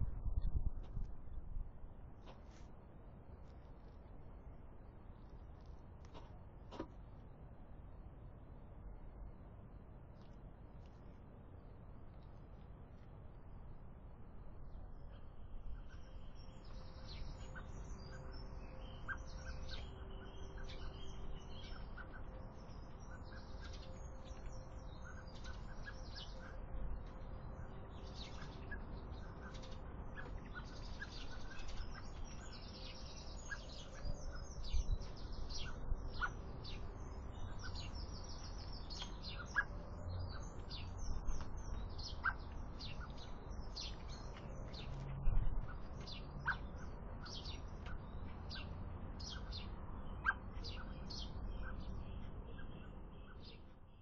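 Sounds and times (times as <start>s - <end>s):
small birds chirping and singing: 15.0s - 54.0s.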